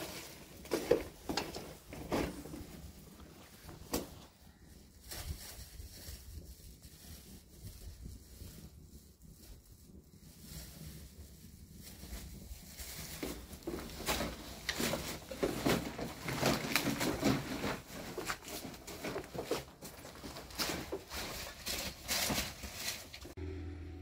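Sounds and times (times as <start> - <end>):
footsteps over rubble: 0.0 - 5.9, 11.6 - 23.3
plastic bag rustling: 0.0 - 23.4.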